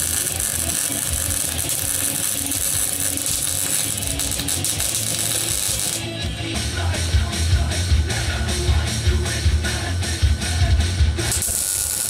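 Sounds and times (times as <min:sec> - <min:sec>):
welder arc crackling: 0:00.0 - 0:06.4, 0:11.2 - 0:12.0.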